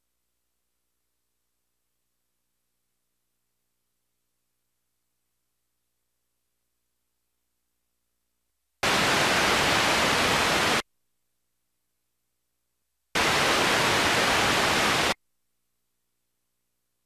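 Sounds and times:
loud static hiss: 8.8 - 10.8, 13.2 - 15.2.

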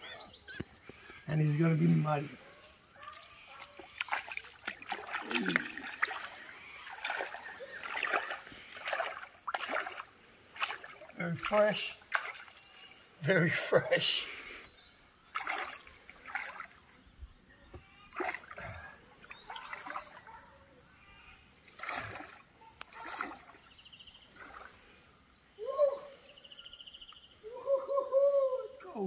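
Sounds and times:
person splashing through water: 2.9 - 13.1, 15.3 - 17.0, 18.0 - 20.3, 21.7 - 24.9.

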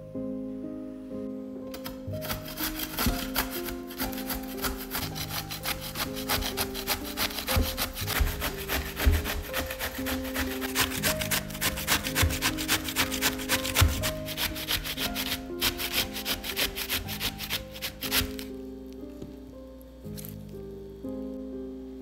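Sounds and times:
zucchini grating on metal grater: 1.8 - 18.5.

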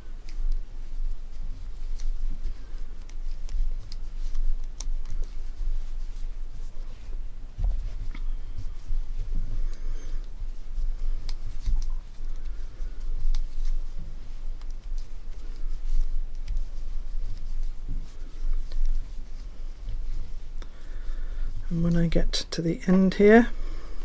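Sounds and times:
yarn rubbing: 0.0 - 24.0
knitting needles clicking: 1.7 - 2.2, 3.0 - 5.4, 11.0 - 13.8, 14.5 - 16.7, 18.5 - 19.0.

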